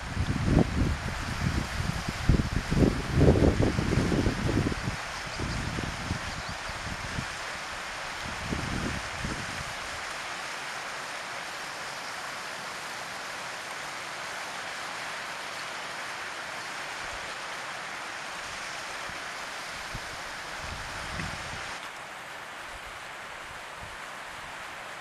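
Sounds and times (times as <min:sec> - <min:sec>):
wind gusts on microphone: 0:00.0 - 0:10.1, 0:19.1 - 0:21.8
stream water rushing: 0:00.0 - 0:25.0.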